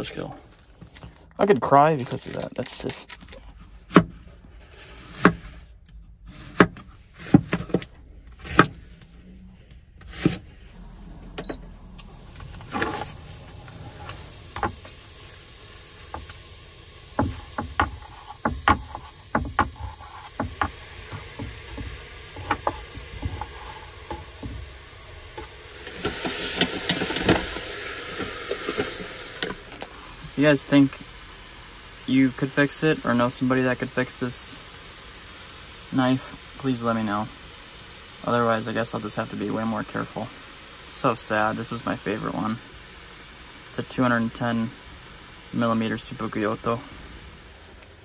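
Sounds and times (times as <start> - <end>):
food sizzling in a pot: 10.0 - 48.0.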